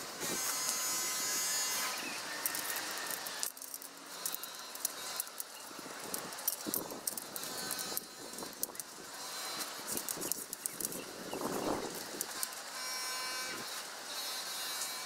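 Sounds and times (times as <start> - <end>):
tent pole clicks and rattles: 2.0 - 12.8.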